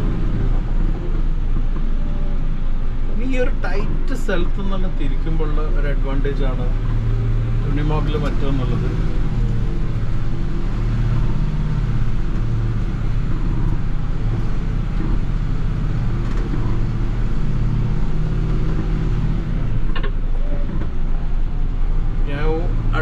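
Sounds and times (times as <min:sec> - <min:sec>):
diesel engine running: 0:00.0 - 0:23.0.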